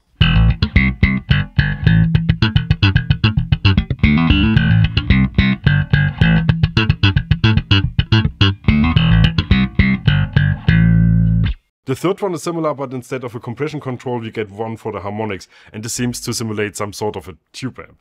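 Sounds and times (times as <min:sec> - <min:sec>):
electric bass plucked notes: 0:00.0 - 0:11.7.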